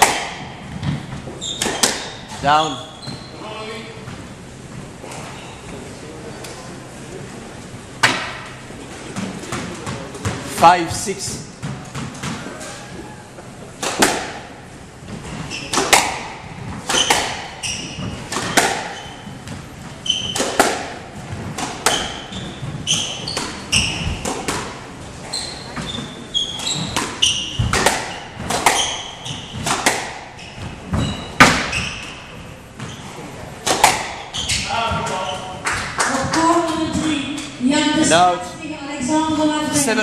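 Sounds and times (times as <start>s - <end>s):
squash ball cracking off rackets: 0.0s - 2.2s, 13.8s - 24.8s, 25.5s - 37.5s
shoes squeaking on wooden floor: 0.6s - 6.4s, 11.6s - 13.6s, 15.0s - 37.2s.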